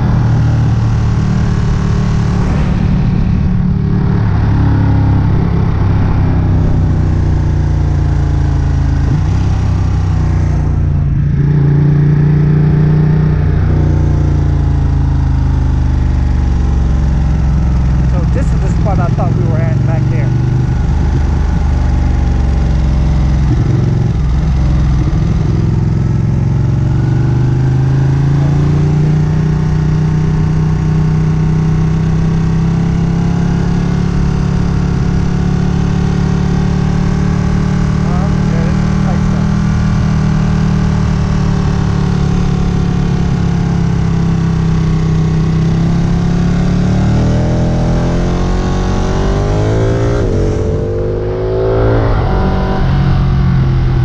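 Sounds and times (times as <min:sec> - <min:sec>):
wind noise: 0:00.0 - 0:07.7
motorcycle engine revving: 0:00.0 - 0:54.0
road noise: 0:00.0 - 0:54.0.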